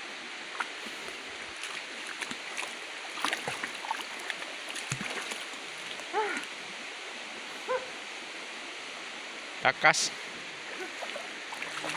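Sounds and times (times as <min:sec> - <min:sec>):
shallow river water running: 0:00.0 - 0:11.9
splashes from people wading: 0:00.5 - 0:06.6, 0:10.6 - 0:11.9.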